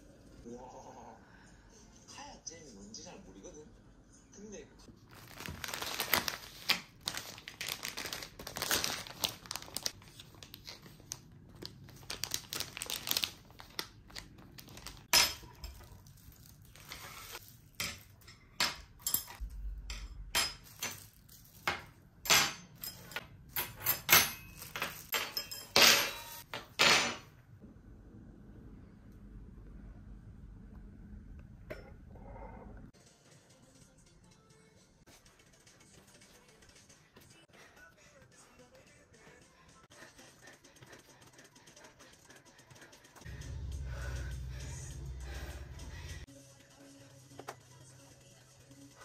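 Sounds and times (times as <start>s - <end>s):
crinkling and rustling: 4.9s - 18.2s.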